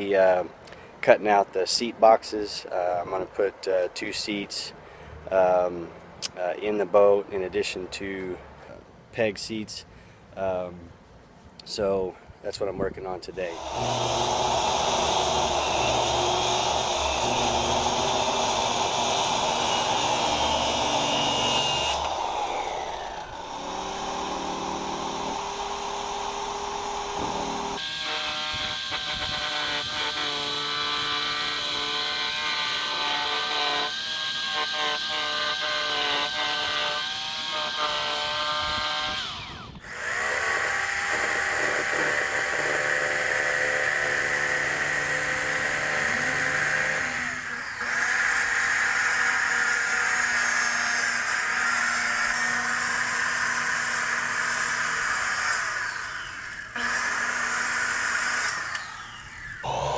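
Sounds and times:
circular saw cutting board: 0:13.4 - 0:59.9
jigsaw cutting plywood: 0:13.5 - 0:59.9.

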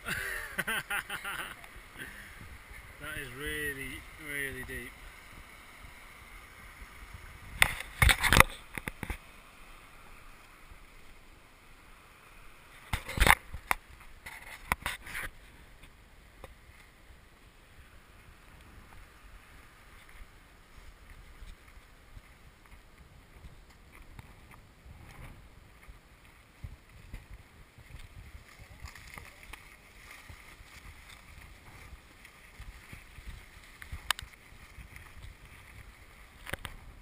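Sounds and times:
small stream rushing: 0:00.0 - 0:37.0
sharp knocks and scrapes: 0:12.9 - 0:15.3.

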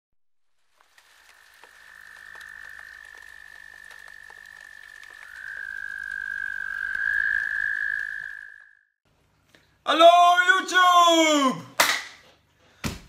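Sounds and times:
frog trilling: 0:01.3 - 0:08.9.

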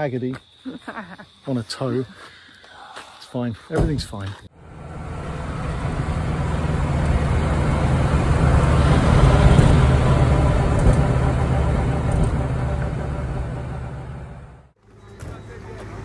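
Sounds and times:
road and wind noise: 0:03.9 - 0:16.0
car engine droning: 0:04.5 - 0:16.0.

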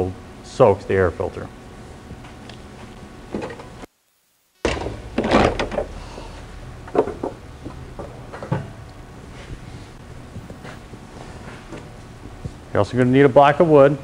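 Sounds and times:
sharp knocks: 0:04.6 - 0:05.9.

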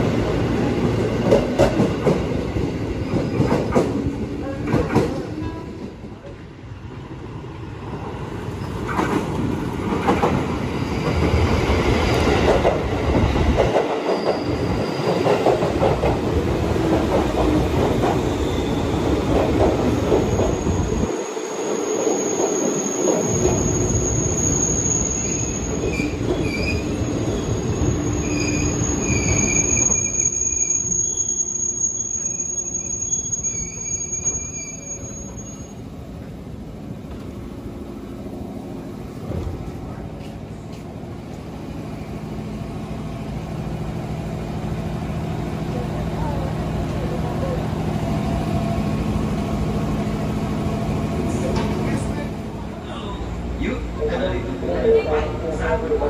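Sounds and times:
train wheels rolling on rails: 0:00.0 - 0:06.4, 0:07.8 - 0:30.2, 0:36.2 - 0:52.7
high brake squeal: 0:14.1 - 0:15.2, 0:18.3 - 0:19.0, 0:21.6 - 0:35.8.

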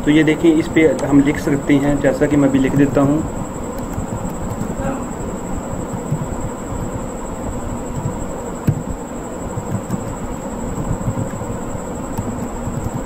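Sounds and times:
low rumbling background noise: 0:00.0 - 0:13.0
thin high whine: 0:00.0 - 0:13.0
keyboard keys typing: 0:02.6 - 0:04.9, 0:05.9 - 0:07.0, 0:07.9 - 0:13.0.

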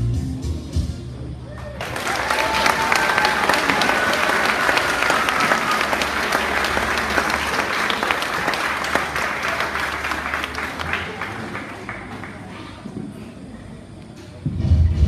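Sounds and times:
audience applauding: 0:01.6 - 0:12.6.

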